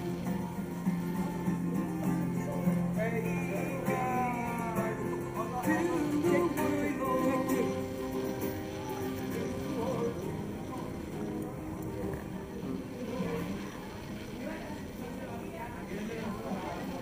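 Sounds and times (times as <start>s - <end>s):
acoustic guitar playing: 0.0s - 17.0s
man singing: 2.3s - 8.4s.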